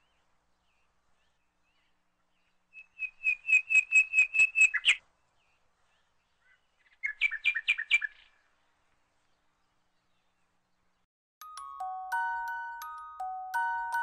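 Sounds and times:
bird singing whistled notes: 0:02.7 - 0:05.0.

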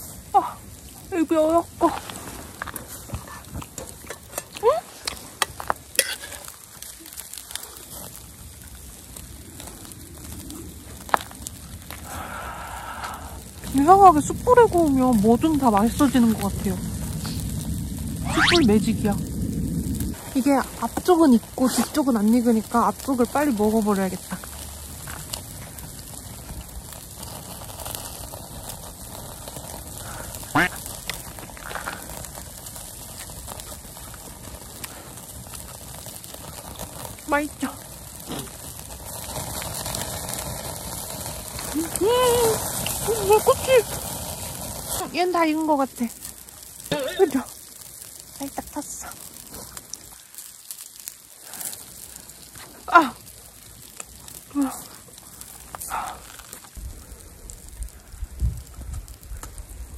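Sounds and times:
charcoal grill crackling: 0:00.0 - 0:59.9
breathy exhale: 0:12.0 - 0:13.6, 0:55.8 - 0:57.4
person squealing: 0:18.3 - 0:18.8.

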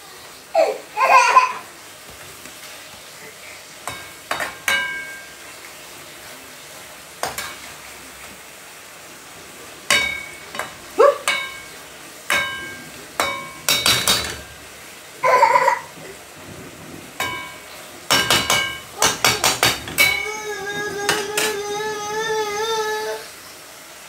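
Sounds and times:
frying sizzle: 0:00.0 - 0:24.0
metal utensil clinking on pot: 0:03.8 - 0:05.4, 0:07.2 - 0:07.8, 0:09.9 - 0:14.7, 0:17.2 - 0:20.4, 0:21.0 - 0:21.6.

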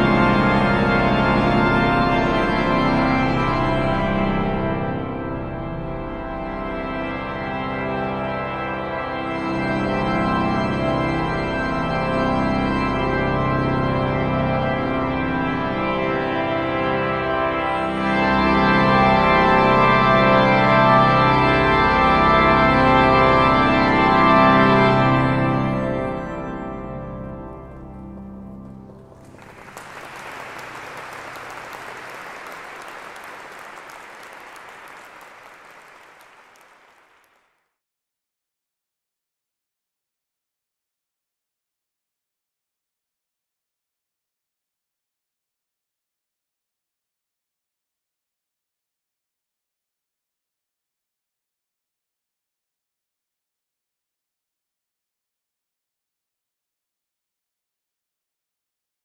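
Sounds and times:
pipe organ chords: 0:00.0 - 0:36.9
audience applause: 0:28.6 - 0:37.6.

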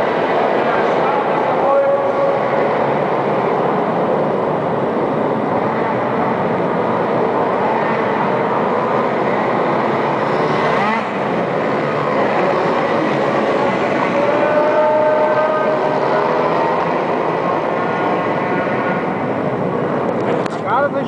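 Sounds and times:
small engines revving: 0:00.0 - 0:20.6.

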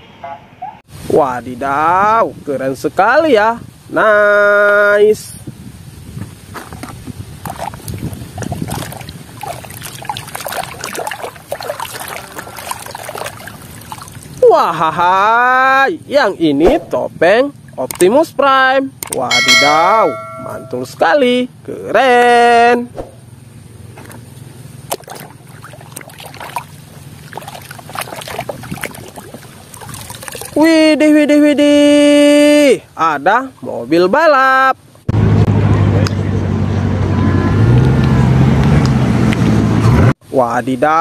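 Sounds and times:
water splashing in a basin: 0:06.5 - 0:14.6, 0:16.7 - 0:18.2, 0:24.0 - 0:30.9.

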